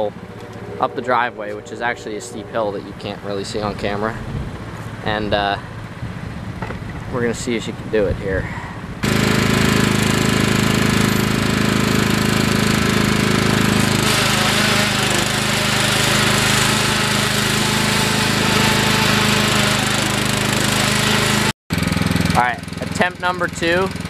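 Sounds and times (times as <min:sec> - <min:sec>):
lawn mower engine at high throttle: 0:09.0 - 0:24.0.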